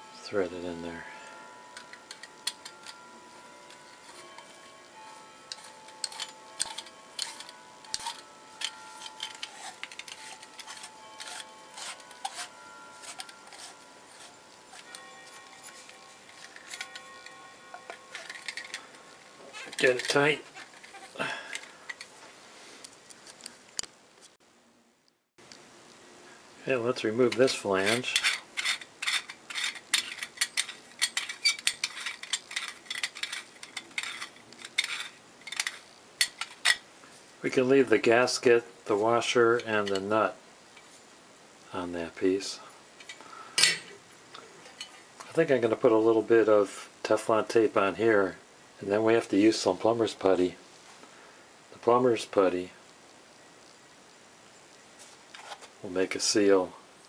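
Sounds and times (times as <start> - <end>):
metal threads scraping: 0.0 - 23.6, 26.9 - 36.8.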